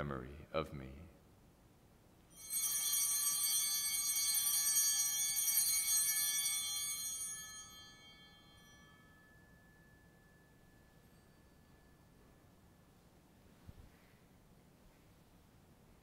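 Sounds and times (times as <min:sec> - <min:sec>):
small bells ringing: 0:02.3 - 0:13.1.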